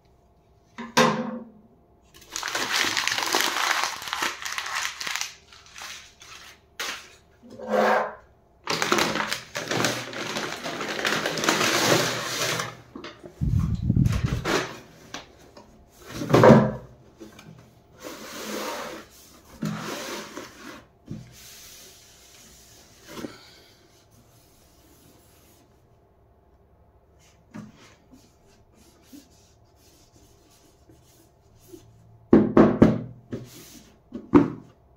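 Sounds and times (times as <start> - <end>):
paper bag rustling: 2.2 - 7.2, 8.7 - 12.8, 13.4 - 14.9.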